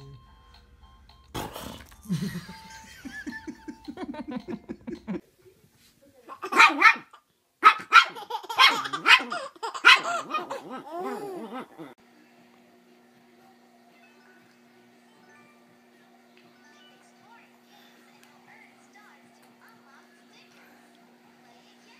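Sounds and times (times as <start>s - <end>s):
small dog barking: 6.3s - 11.2s
baby laughing: 7.9s - 12.0s.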